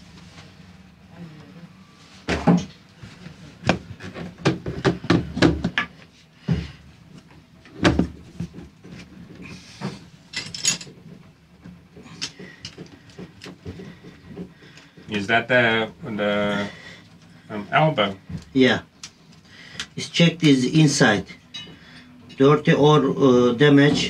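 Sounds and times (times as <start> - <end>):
knocks and clicks of hard parts: 3.7 - 6.8.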